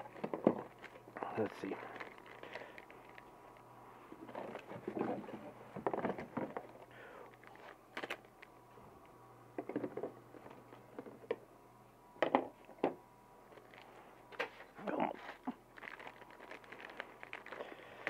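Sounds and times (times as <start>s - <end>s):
cardboard packaging rustling: 0.0s - 8.5s, 13.5s - 18.0s.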